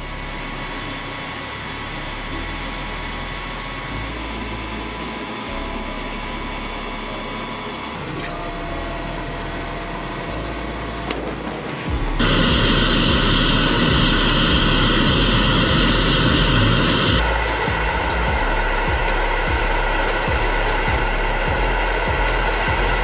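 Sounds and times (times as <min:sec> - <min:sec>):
engine and hydraulics whirring hum: 0:00.0 - 0:23.0
thin whine: 0:00.0 - 0:23.0.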